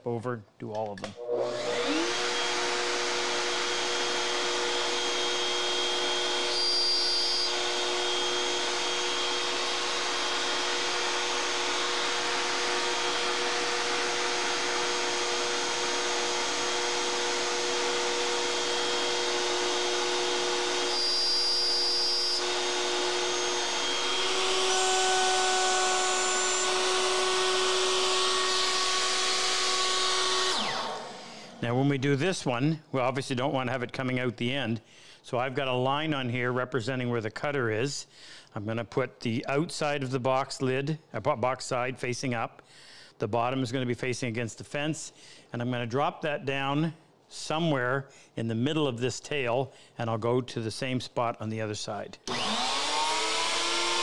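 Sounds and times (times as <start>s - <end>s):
electric router cutting wood: 1.2s - 32.0s, 52.3s - 54.0s.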